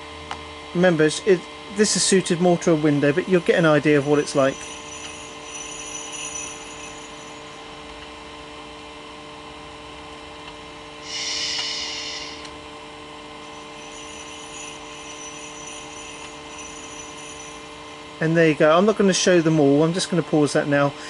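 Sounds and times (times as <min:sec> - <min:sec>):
projector hum with held tones: 0:00.0 - 0:21.0
bright hissing burst from speaker: 0:11.0 - 0:12.5.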